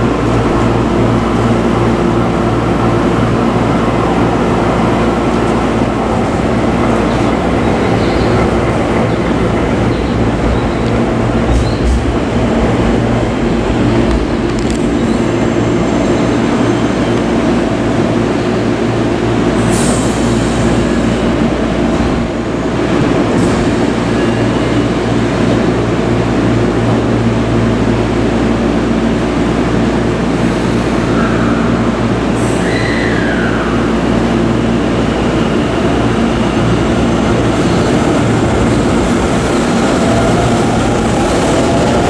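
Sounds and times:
high squeal: 32.5s - 34.0s
electric train running: 34.0s - 42.0s.

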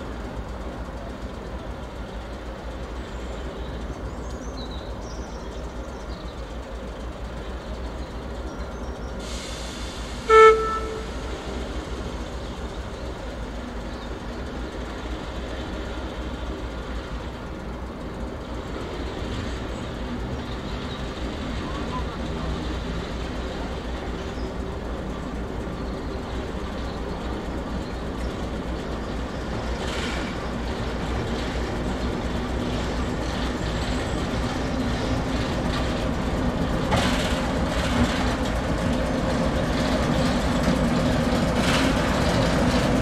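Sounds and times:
diesel locomotive rumbling: 0.0s - 43.0s
brief hiss: 9.2s - 11.4s
locomotive horn toot: 10.2s - 11.5s.

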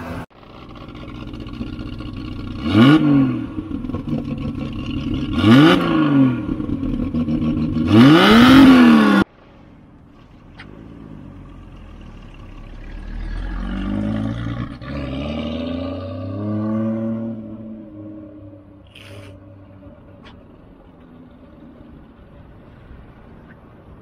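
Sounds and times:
car engine revving: 0.0s - 9.3s, 10.4s - 23.2s.

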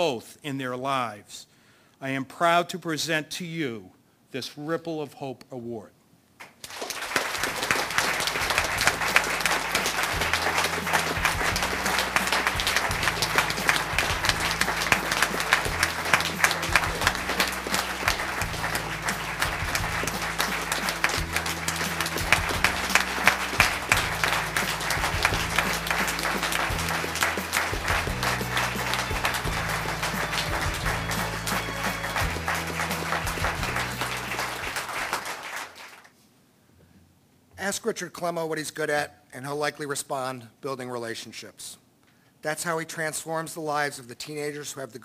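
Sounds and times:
audience applauding: 6.4s - 36.1s
background music: 7.1s - 35.6s.

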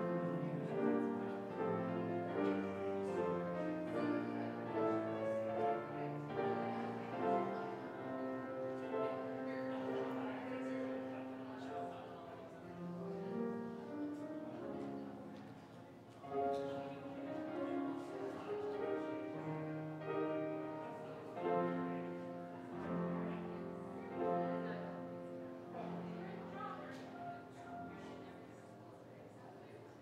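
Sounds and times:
slow keyboard music: 0.0s - 11.6s, 16.4s - 28.3s.

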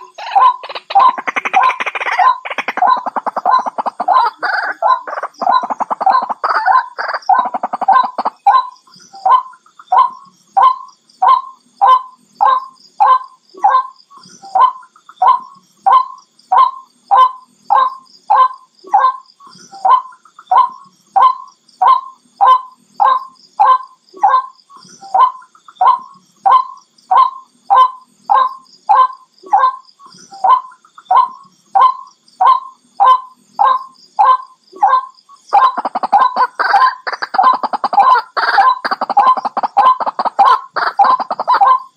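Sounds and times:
waterhen calling: 0.0s - 8.6s, 33.6s - 41.9s.

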